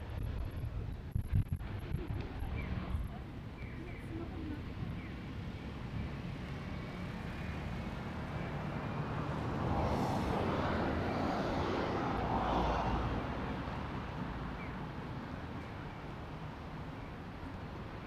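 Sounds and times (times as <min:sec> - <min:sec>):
traffic background: 0:00.0 - 0:18.0
vehicle passing: 0:04.3 - 0:16.7.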